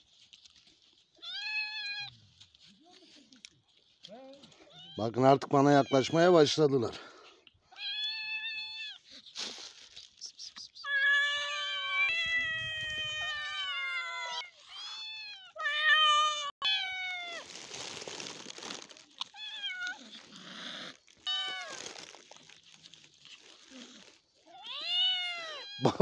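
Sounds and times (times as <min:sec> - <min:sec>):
cats meowing: 0:01.2 - 0:02.1, 0:04.6 - 0:06.6, 0:07.7 - 0:09.2, 0:10.8 - 0:22.8, 0:23.4 - 0:26.0.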